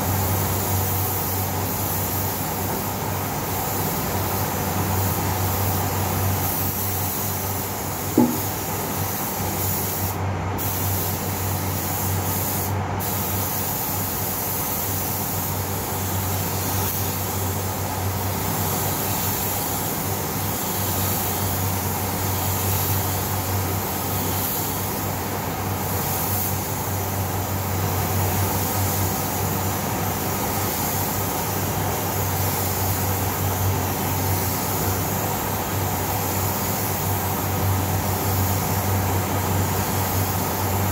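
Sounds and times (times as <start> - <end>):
spray gun hissing: 0.0 - 40.9
sharp knock: 8.2 - 8.5.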